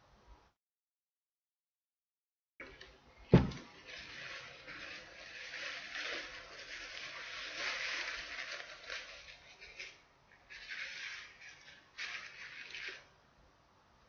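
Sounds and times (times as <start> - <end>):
thump: 3.3 - 3.6
tissue rubbing over a disc: 3.6 - 13.1.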